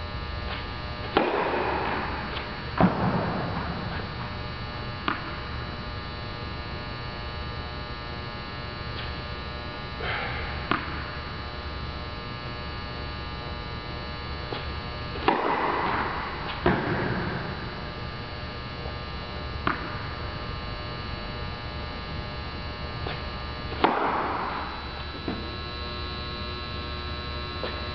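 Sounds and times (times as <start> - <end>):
electrical mains hum: 0.0 - 27.9
racquet striking tennis ball: 0.5 - 4.3, 5.0 - 5.5, 10.1 - 11.1, 14.5 - 17.8, 19.6 - 20.0, 23.0 - 25.5
tennis ball bouncing: 1.1 - 4.3, 5.0 - 5.4, 10.7 - 11.1, 14.5 - 17.8, 19.6 - 20.0, 23.0 - 25.5.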